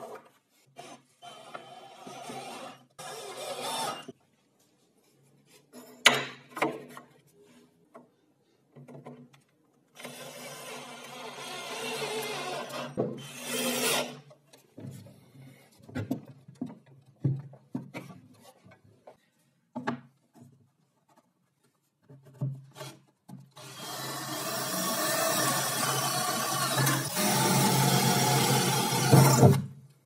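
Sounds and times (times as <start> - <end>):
cordless drill running: 23.6 - 29.5.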